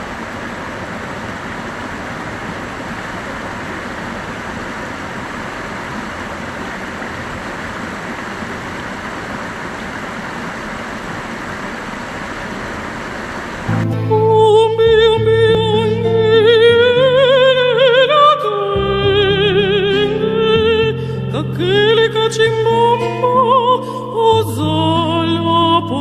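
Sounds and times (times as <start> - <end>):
river water over rocks: 0.0 - 13.7.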